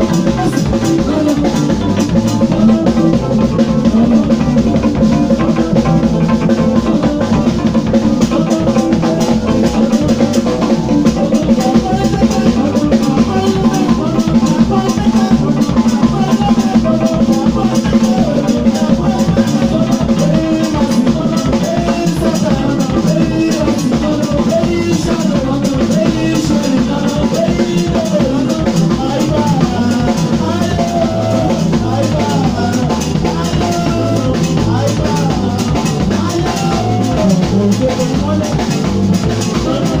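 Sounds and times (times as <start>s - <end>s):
drum kit beat: 0.0s - 40.0s
live band dance music: 0.0s - 40.0s.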